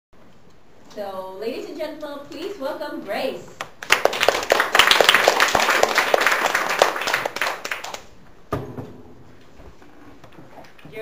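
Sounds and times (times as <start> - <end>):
audience applauding: 3.8 - 8.1
thump: 8.5 - 9.2.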